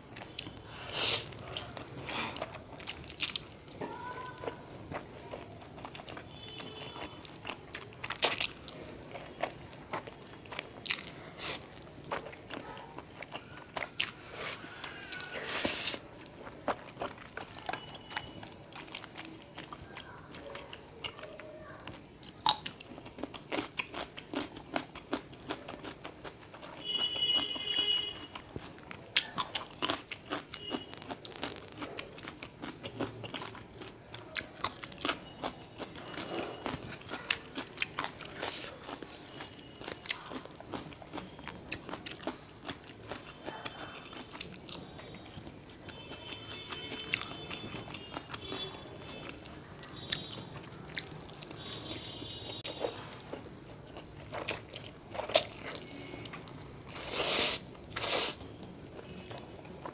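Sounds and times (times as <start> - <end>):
wet chewing of noodles: 0.0 - 59.9
slurping noodles: 15.2 - 16.0, 56.9 - 58.4
crunching carrot bites: 28.2 - 58.4.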